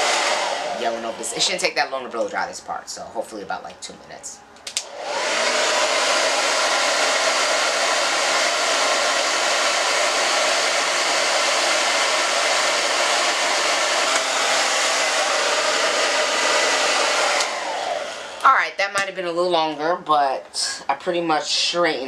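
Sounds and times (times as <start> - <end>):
hair dryer blowing: 0.0 - 2.4, 4.7 - 19.9.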